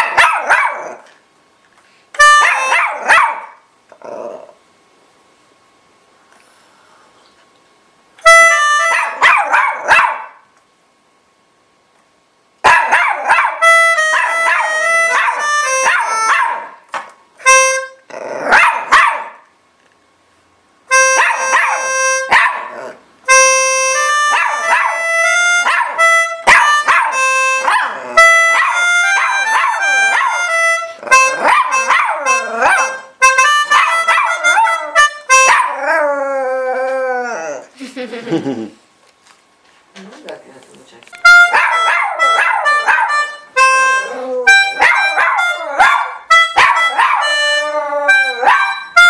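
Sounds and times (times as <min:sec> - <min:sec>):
organ playing held notes: 0:13.6 - 0:16.3, 0:23.3 - 0:35.5, 0:41.2 - 0:49.0
dog howling and yipping: 0:26.5 - 0:33.1, 0:34.1 - 0:37.7, 0:43.9 - 0:48.8.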